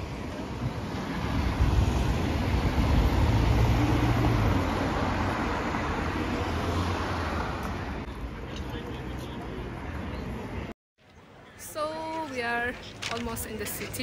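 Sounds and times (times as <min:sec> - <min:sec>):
vehicle passing by: 0:00.1 - 0:09.8.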